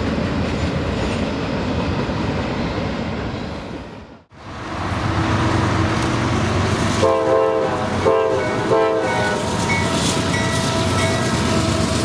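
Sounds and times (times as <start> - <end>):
passing freight train: 0.0 - 12.0
locomotive engines running: 4.4 - 12.0
locomotive air horn blasts: 6.9 - 9.8.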